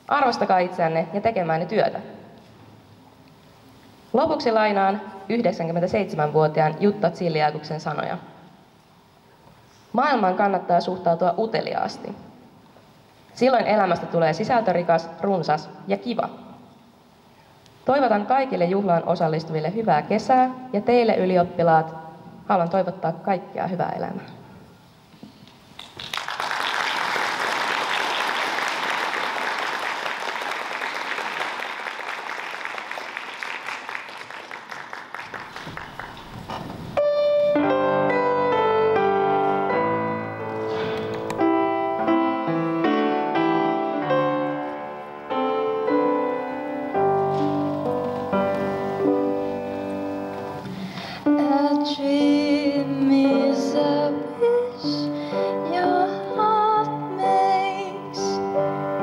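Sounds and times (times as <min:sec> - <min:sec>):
audience applause: 0:25.8 - 0:36.5
piano playing: 0:36.8 - 0:59.0.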